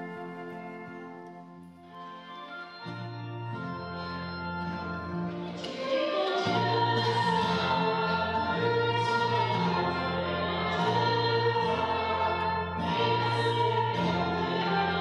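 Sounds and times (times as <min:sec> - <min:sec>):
instrumental accompaniment: 0:00.0 - 0:15.0
choir singing: 0:05.4 - 0:15.0.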